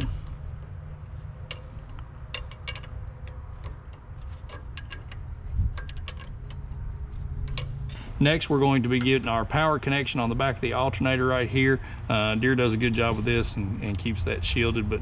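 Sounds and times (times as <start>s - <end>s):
light clicks of metal hardware: 0.0s - 8.1s
low steady rumble: 0.0s - 15.0s.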